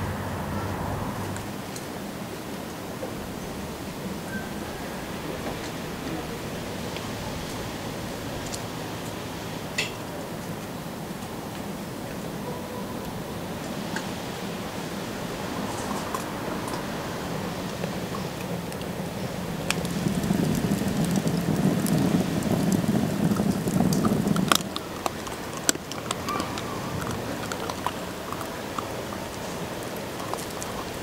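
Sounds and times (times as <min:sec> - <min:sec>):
fire rushing: 0:00.0 - 0:12.3, 0:13.0 - 0:31.0
outdoor ambience: 0:00.0 - 0:31.0
fire crackling and popping: 0:15.4 - 0:31.0.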